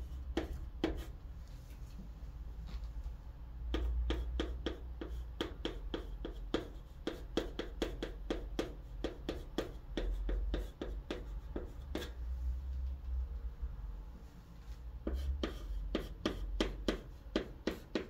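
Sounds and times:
chalk scratching on chalkboard: 0.0 - 1.2, 3.7 - 12.2, 15.0 - 18.0.

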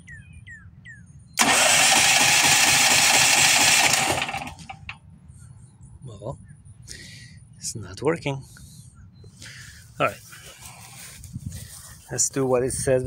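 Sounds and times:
generator starter cranking: 1.4 - 5.0.

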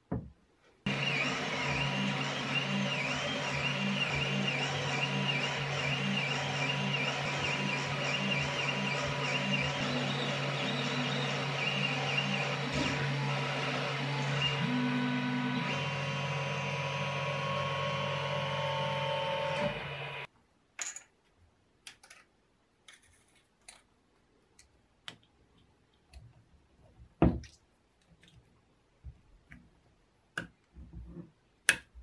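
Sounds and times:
fan hum: 0.9 - 20.3
stepper motors whining: 0.9 - 20.3
small parts clicking and tapping: 20.8 - 23.9.

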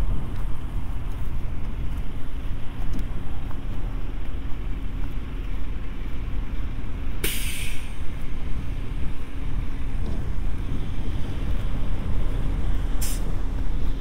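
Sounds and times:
road traffic: 0.0 - 14.0
wind rumble: 0.0 - 14.0
sudden short hiss: 7.2 - 8.0, 13.0 - 13.3.

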